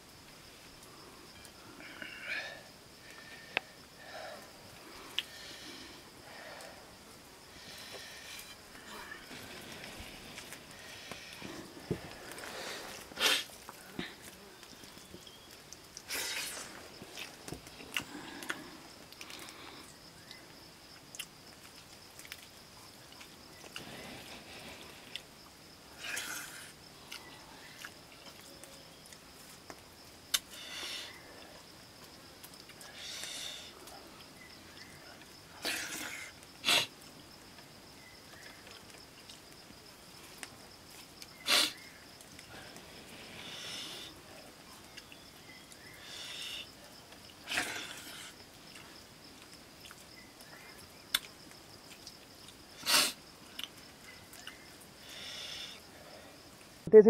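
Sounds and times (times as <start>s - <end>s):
mouth sounds eating: 41.3s - 41.9s, 49.8s - 55.8s.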